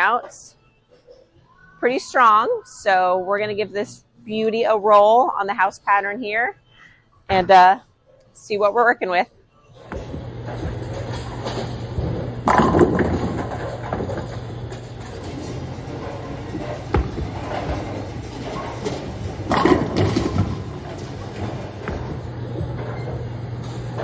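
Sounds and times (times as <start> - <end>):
bowling alley hum: 9.7 - 24.0
bowling ball thudding and rolling: 9.8 - 24.0
bowling pins crashing: 9.9 - 24.0.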